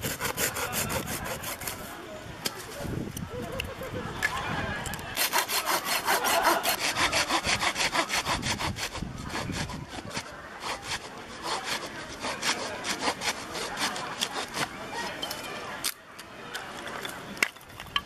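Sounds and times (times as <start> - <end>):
hand saw cutting wood: 0.0 - 1.9, 5.2 - 15.2.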